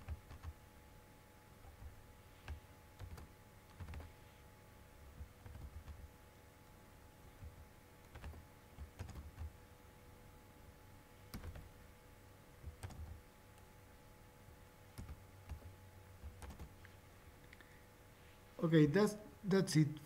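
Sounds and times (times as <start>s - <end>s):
computer keyboard keystrokes: 0.0s - 0.6s, 1.6s - 4.1s, 5.2s - 6.0s, 7.2s - 9.6s, 11.3s - 11.7s, 12.6s - 13.7s, 14.9s - 16.7s.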